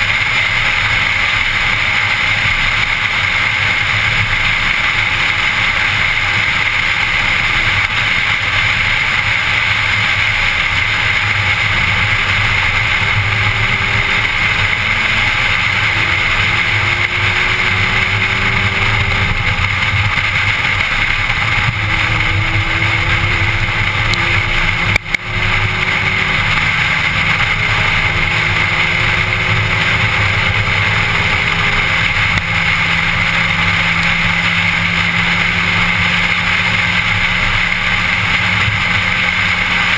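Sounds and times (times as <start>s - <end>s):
car engine accelerating: 0.0s - 39.9s
road and wind noise: 0.0s - 39.9s.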